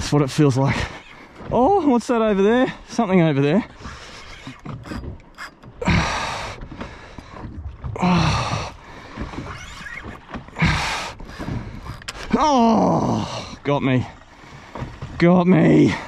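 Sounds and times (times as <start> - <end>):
man breathing heavily and grunting: 5.8 - 6.6, 8.0 - 9.1, 10.6 - 13.6.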